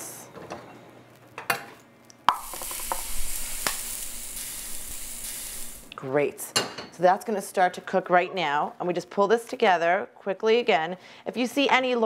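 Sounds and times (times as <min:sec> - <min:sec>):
hot oil sizzling in batter: 0:02.3 - 0:05.9.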